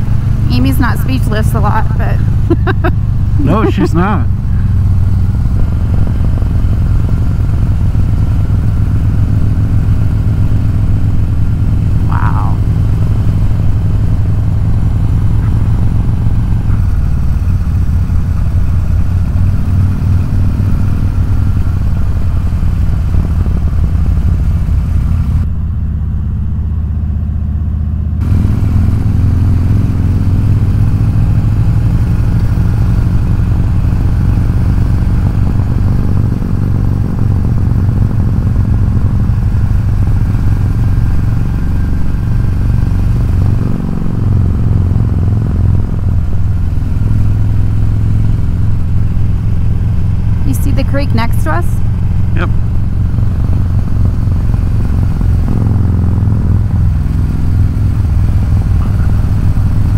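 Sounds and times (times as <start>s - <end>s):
motorcycle engine cruising: 0.0s - 59.9s.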